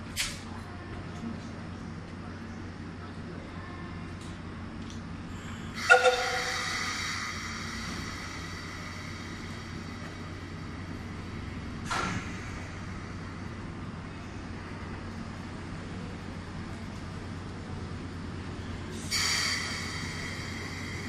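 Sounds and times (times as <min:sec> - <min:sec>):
electric locomotive humming: 0:00.0 - 0:21.0
loud ringing tone: 0:05.8 - 0:07.0.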